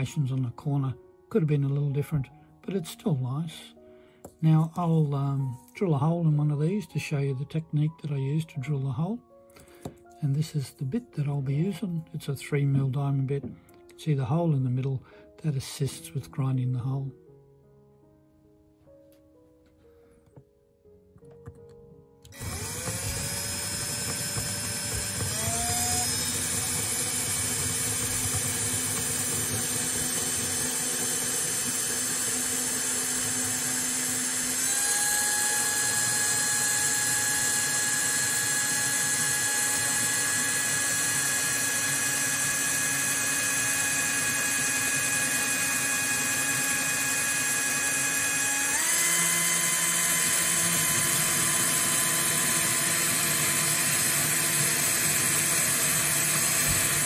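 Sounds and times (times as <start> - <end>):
drill bit grinding glass: 22.3 - 57.0
drill motor whine: 22.3 - 57.0.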